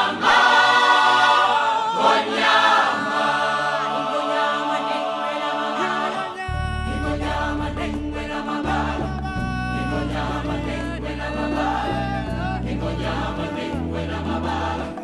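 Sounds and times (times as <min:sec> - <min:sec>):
choral singing: 0:00.0 - 0:15.0
deep sustained bass notes: 0:06.5 - 0:15.0.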